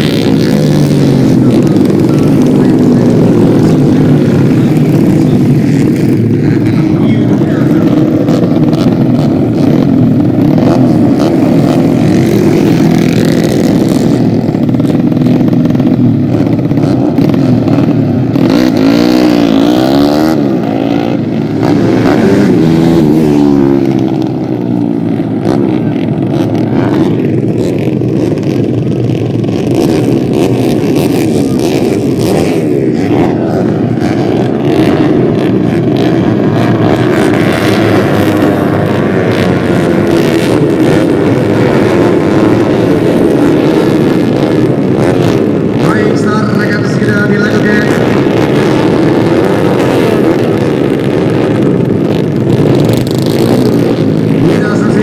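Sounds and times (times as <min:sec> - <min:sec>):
racing motorcycles revving: 0:00.0 - 0:55.0.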